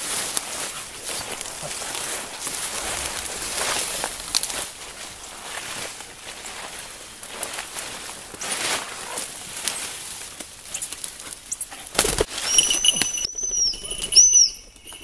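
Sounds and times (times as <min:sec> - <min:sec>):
footsteps rustling through undergrowth: 0:00.0 - 0:15.0
bird wings flapping: 0:11.9 - 0:13.3
high ringing tone: 0:12.3 - 0:15.0.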